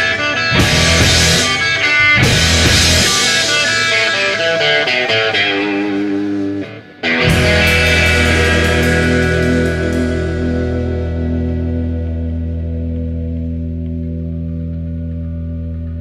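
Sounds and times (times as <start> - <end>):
garage rock band: 0.0 - 16.0
picked guitar notes: 0.0 - 16.0
sustained guitar chord: 7.1 - 16.0.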